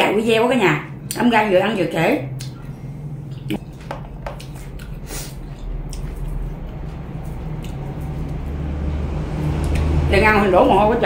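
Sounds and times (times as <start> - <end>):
steady low hum: 0.0 - 11.0
wet chewing and mouth sounds: 2.3 - 10.0.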